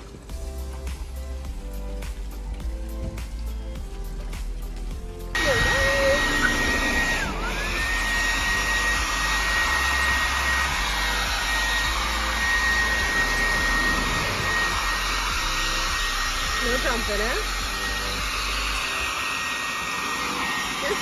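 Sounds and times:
hair dryer blowing with high whine: 0.0 - 21.0.

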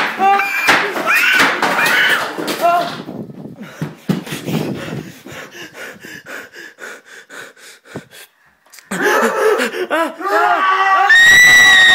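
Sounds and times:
person breathing in shaky gasps: 3.6 - 10.2.

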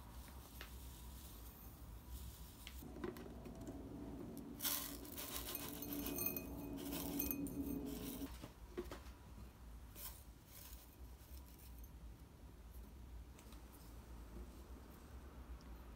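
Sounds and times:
light rustle of powder: 0.0 - 8.3
metal spoon clinking ceramic bowl: 4.4 - 8.3.

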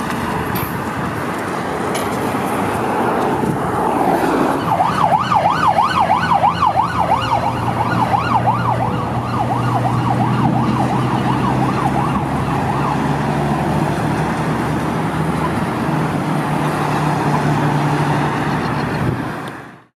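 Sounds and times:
low traffic hum: 0.0 - 19.9
siren yelping: 4.4 - 13.7.

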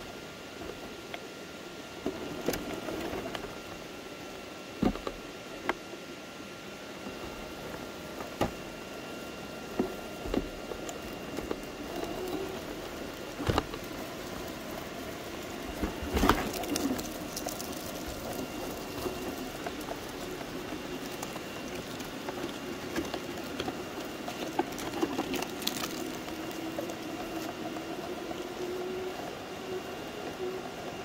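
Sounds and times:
electric motor whining: 7.0 - 31.0.

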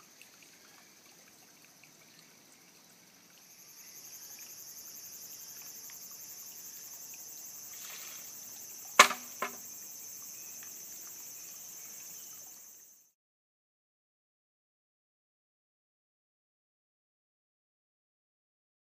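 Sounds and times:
high-pitched insect chorus: 0.0 - 13.2
bamboo tube knocking on stone: 9.0 - 9.6.

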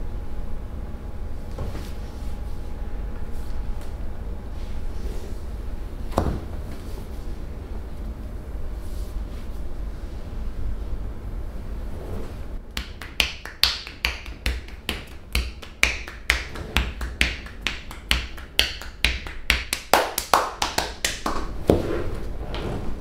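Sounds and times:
hands slapping body: 12.8 - 21.8.

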